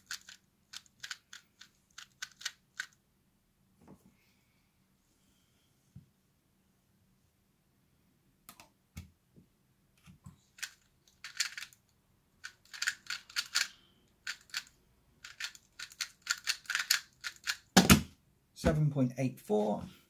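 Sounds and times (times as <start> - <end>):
puzzle cube plastic clicks: 0.0 - 3.0, 10.4 - 17.8.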